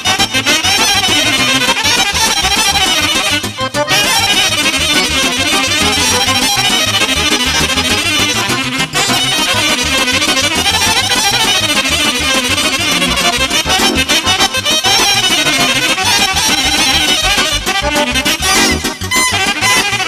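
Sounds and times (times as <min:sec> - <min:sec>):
accordion fast melody: 0:00.0 - 0:20.0
brass playing: 0:00.0 - 0:20.0
pulsing bass beat: 0:00.9 - 0:20.0.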